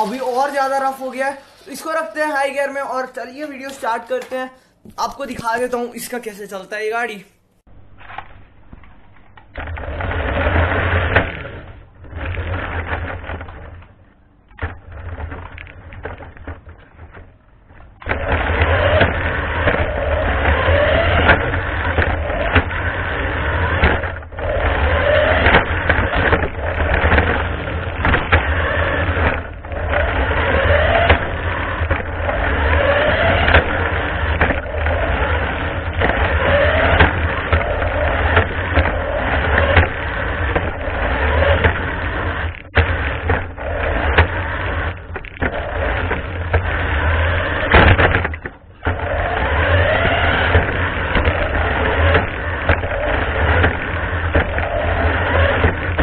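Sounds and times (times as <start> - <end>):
toy car motor whirring: 18.0 - 56.0.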